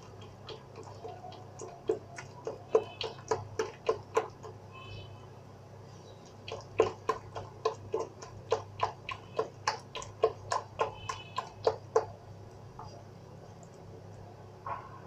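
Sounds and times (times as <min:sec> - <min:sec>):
batter beaten in glass bowl: 0:00.0 - 0:04.7, 0:06.3 - 0:12.2.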